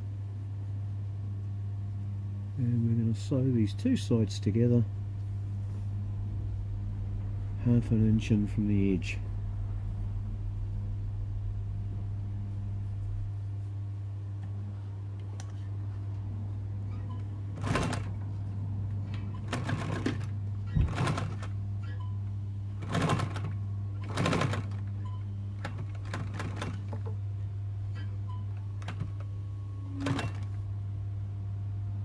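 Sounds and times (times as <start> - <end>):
steady low hum: 0.0 - 32.0
sewing machine stitching: 17.6 - 18.2, 19.3 - 21.5, 22.8 - 24.9, 25.6 - 27.1, 29.9 - 30.6.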